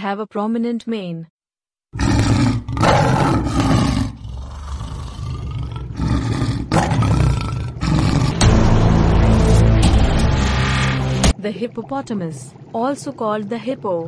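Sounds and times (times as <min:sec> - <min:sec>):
lion roaring and growling: 0:02.0 - 0:10.4.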